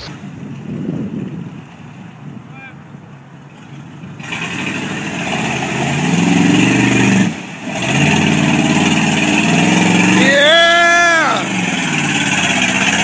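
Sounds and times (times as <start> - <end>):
mud splashing around tyres: 3.6 - 13.0
bus engine revving: 4.2 - 13.0.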